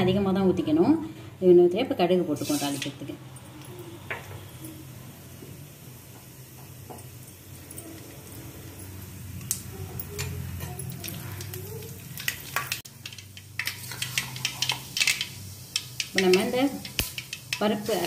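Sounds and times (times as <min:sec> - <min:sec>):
seeds sizzling and popping in oil: 0:02.4 - 0:18.0.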